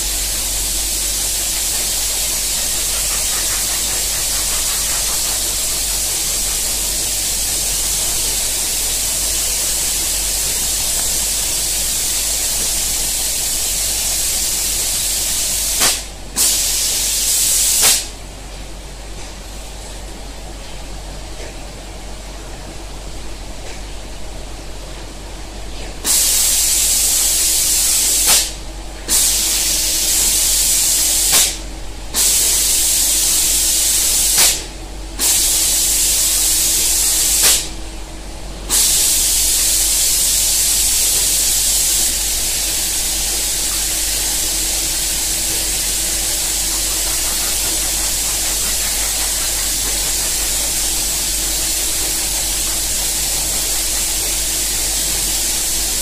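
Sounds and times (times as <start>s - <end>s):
spray guns hissing: 0.0s - 18.1s, 38.7s - 56.0s
faint machine hum: 0.0s - 56.0s.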